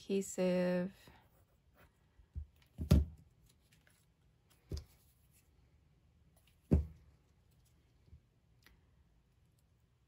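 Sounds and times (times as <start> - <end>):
knocks and bumps on a desk: 6.6 - 7.0.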